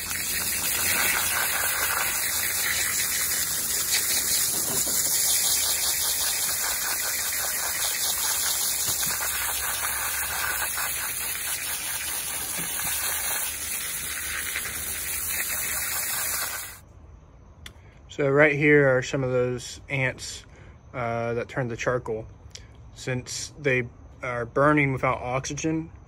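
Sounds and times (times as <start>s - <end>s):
pressure washer spraying: 0.0s - 16.8s.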